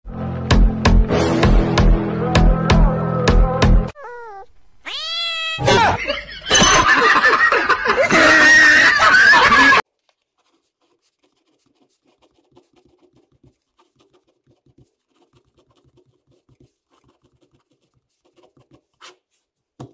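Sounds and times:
pen scratching on paper: 10.0s - 19.9s.

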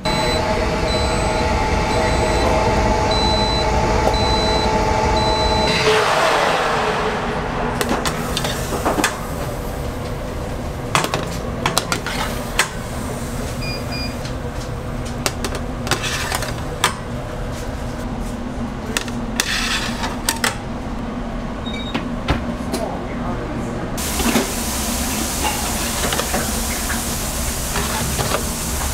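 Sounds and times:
short electronic beep: 0.0s - 5.9s
oven hum: 0.0s - 28.9s
metal trays clattering on racks: 10.9s - 12.8s, 15.1s - 17.2s.

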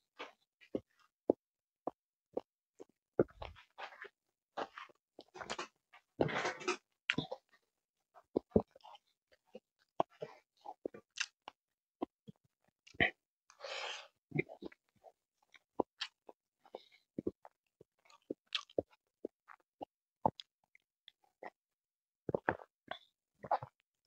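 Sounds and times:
chewing food: 0.2s - 7.6s, 8.2s - 21.6s, 22.3s - 23.8s.

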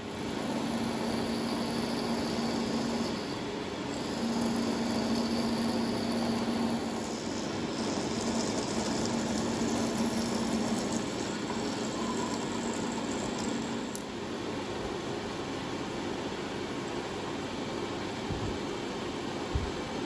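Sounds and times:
milling machine whirring: 0.0s - 14.7s.

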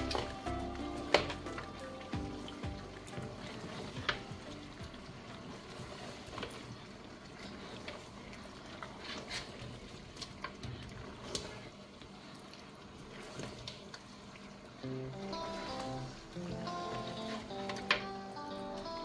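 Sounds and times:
wet squelching of stew: 0.0s - 19.0s.

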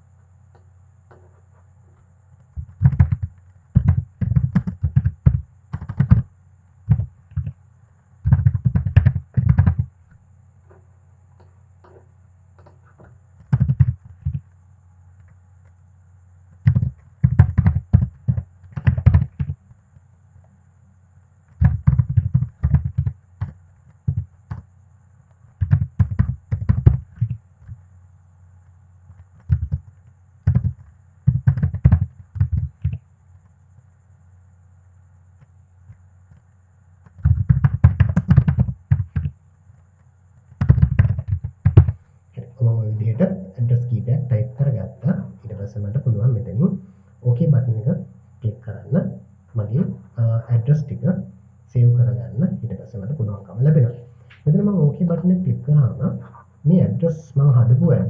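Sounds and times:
faint low hum: 0.0s - 58.0s
computer keyboard typing: 2.6s - 6.3s, 6.9s - 7.6s, 8.2s - 9.9s, 13.4s - 14.4s, 16.6s - 19.6s, 21.6s - 24.7s, 25.6s - 27.8s, 29.3s - 33.0s, 37.1s - 39.3s, 40.6s - 42.0s.

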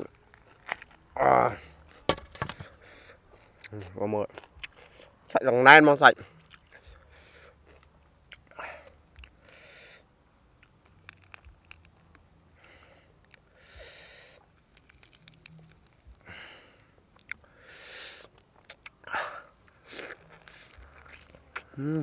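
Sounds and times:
wet mouth clicks and smacks: 6.4s - 7.0s, 17.2s - 17.5s, 18.2s - 19.0s
sharp breaths or sniffs: 6.8s - 7.6s, 8.6s - 10.1s, 12.6s - 14.5s, 16.2s - 18.3s.

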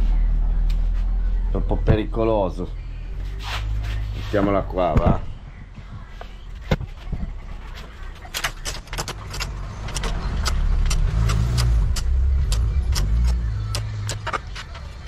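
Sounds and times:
hand tools clicking on metal: 8.3s - 15.0s.

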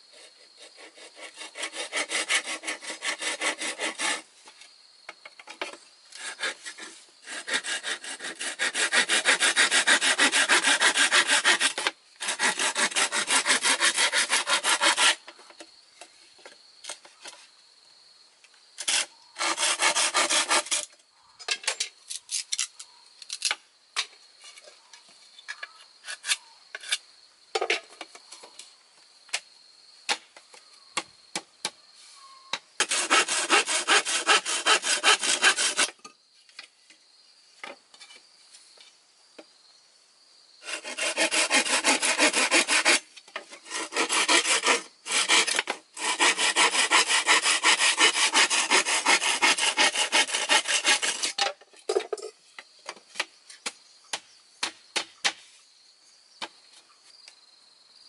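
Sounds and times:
hand saw cutting bamboo: 0.1s - 4.3s, 5.6s - 15.3s, 18.8s - 20.9s, 32.8s - 36.0s, 40.6s - 51.4s.

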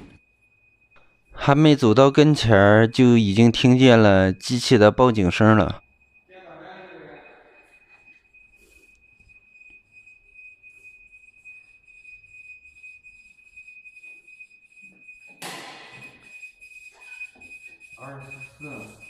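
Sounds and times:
high-pitched alarm buzzer: 5.4s - 19.0s.

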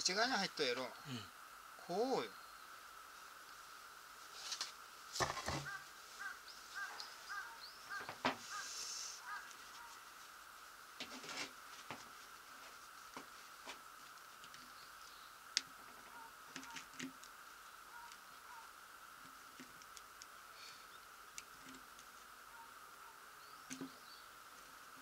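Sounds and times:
bird calling short notes: 5.6s - 10.0s
faint steady high tone: 22.5s - 24.3s.

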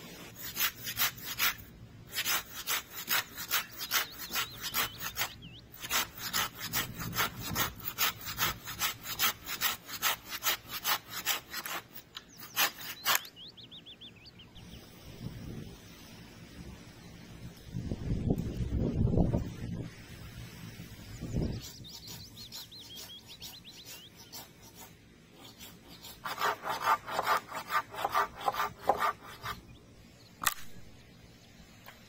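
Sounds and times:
hand saw cutting wood: 0.0s - 13.3s, 21.6s - 29.6s.

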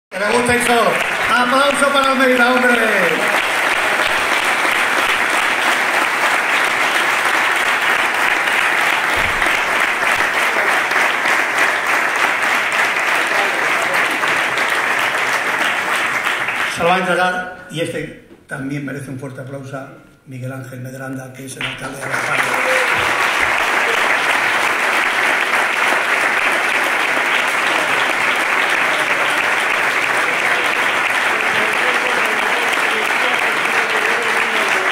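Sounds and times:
audience applauding: 0.1s - 17.2s, 21.6s - 34.9s.

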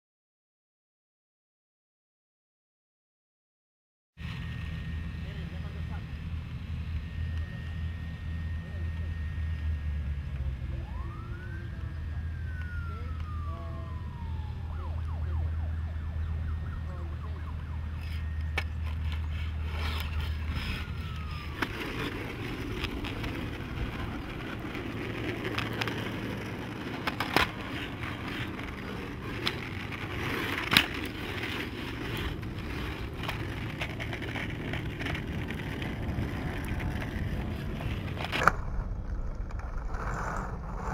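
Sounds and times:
board wheels rolling on asphalt: 4.2s - 40.9s
low steady hum: 4.2s - 40.9s
board clacking against pavement: 21.6s - 31.3s.

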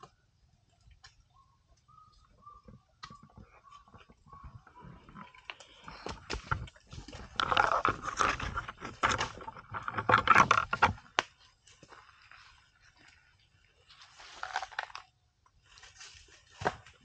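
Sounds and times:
elephant crunching vegetation: 4.9s - 11.4s, 14.0s - 15.1s.

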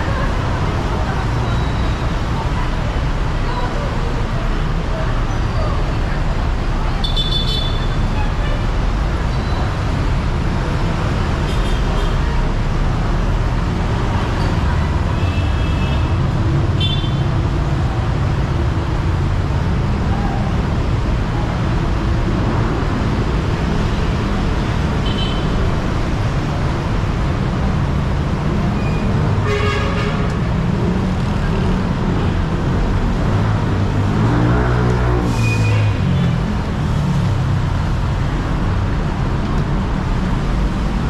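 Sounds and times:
traffic engine rumble: 0.0s - 41.0s
car horn: 7.0s - 8.0s, 29.4s - 30.3s.

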